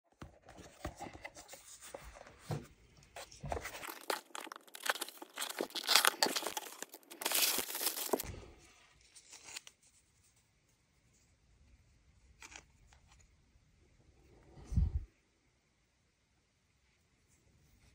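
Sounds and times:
cardboard crackling: 3.2s - 8.3s
packing tape ripping: 3.8s - 8.2s.

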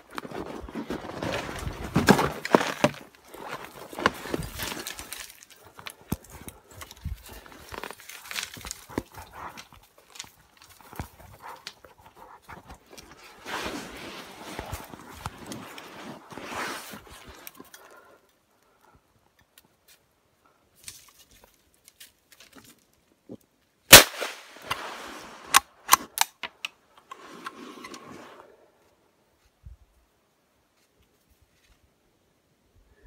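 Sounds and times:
rustling: 0.0s - 18.8s
loud gunshot: 23.9s - 24.5s.

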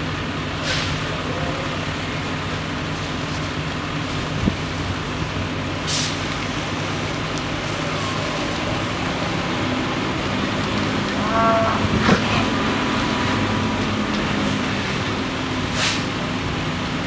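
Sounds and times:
fire engine motor droning: 0.0s - 17.0s.

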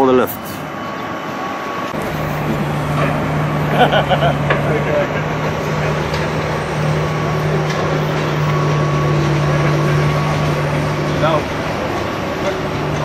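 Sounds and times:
crane diesel engine idling: 0.0s - 13.0s.

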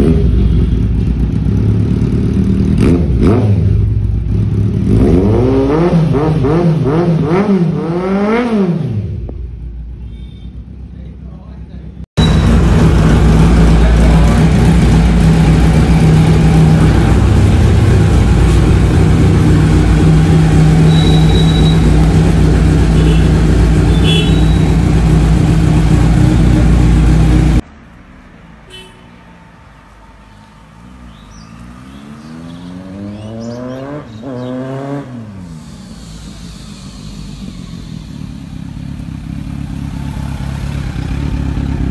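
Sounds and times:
motorcycle engine running loud: 0.0s - 8.4s, 12.2s - 27.6s, 35.6s - 41.9s
passing vehicle engine: 12.2s - 41.9s.

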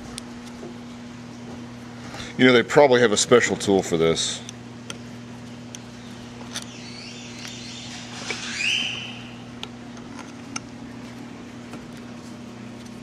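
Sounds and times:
steady low hum: 0.0s - 13.0s
brief rising squeak: 6.6s - 9.5s.

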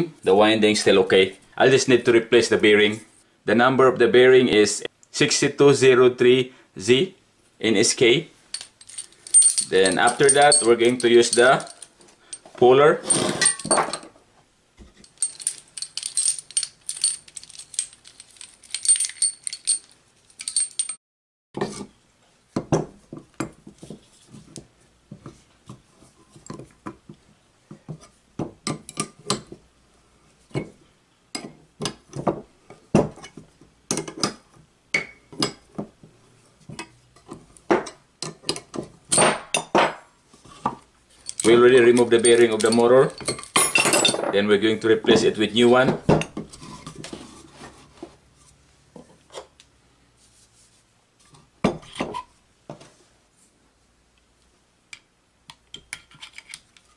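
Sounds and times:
gear puller jangling and clinking: 8.6s - 12.4s, 15.0s - 21.0s, 41.2s - 44.2s.

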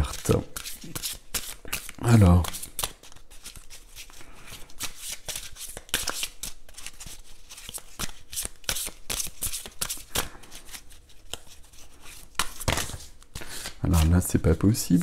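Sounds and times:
cards being shuffled: 0.0s - 15.0s.

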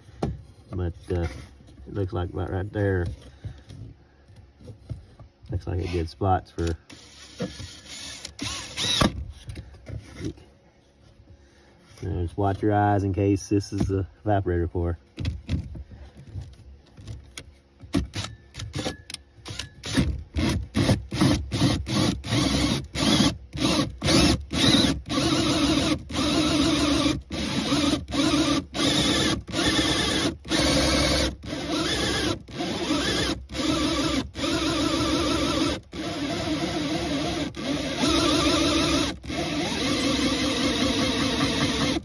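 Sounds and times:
drill cutting into plastic: 6.9s - 9.2s, 18.0s - 42.0s.

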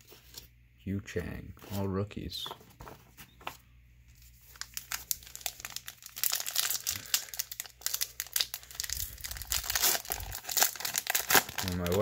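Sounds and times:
foil wrapper crinkling: 4.2s - 12.0s.

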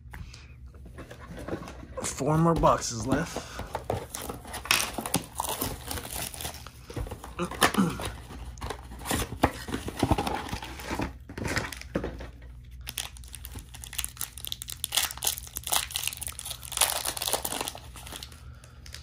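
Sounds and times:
foil packs tearing and crinkling: 4.0s - 12.0s, 12.8s - 19.0s.

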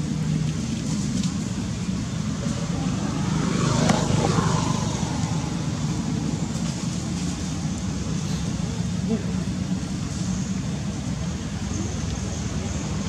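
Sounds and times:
steady low rumble: 0.0s - 13.0s
vehicle engine passing: 0.9s - 9.1s.

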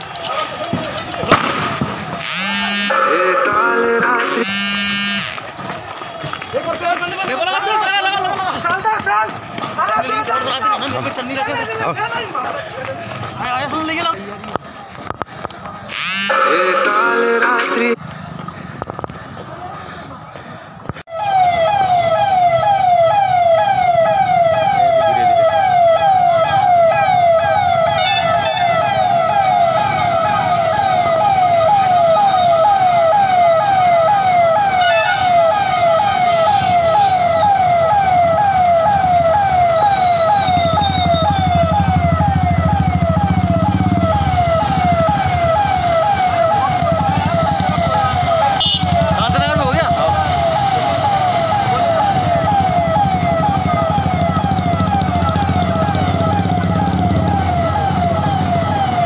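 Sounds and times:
engine and traffic rumble: 0.0s - 59.0s
police siren: 2.1s - 6.5s, 15.9s - 18.0s, 21.1s - 59.0s.

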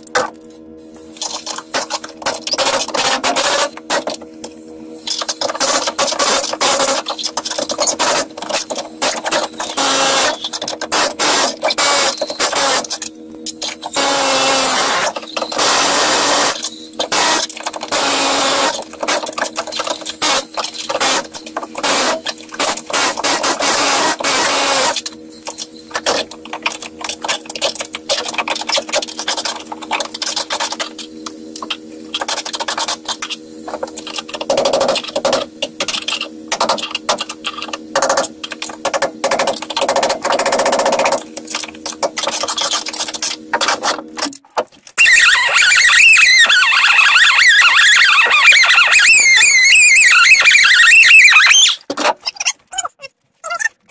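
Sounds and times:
steady hum: 0.0s - 51.9s
cordless drill motor whirring: 45.0s - 51.8s.

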